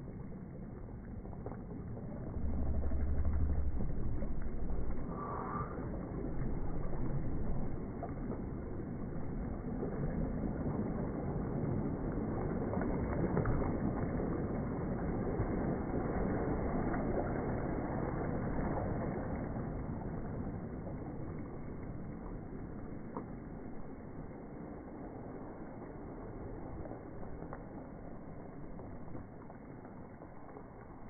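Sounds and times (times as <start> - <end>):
waves washing over pebbles: 0.0 - 31.0.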